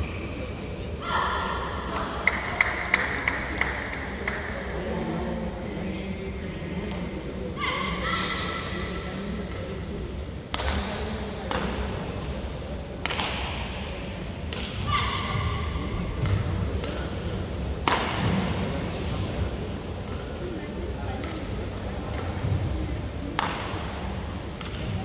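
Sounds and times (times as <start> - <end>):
rackets striking shuttlecock: 10.5 - 12.0, 13.0 - 13.6, 16.2 - 18.5, 21.2 - 22.6, 23.3 - 25.0.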